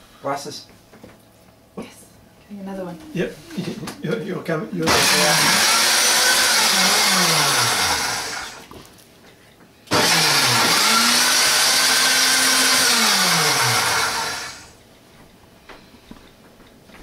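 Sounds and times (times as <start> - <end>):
blender motor running: 4.8 - 8.7, 9.9 - 14.8.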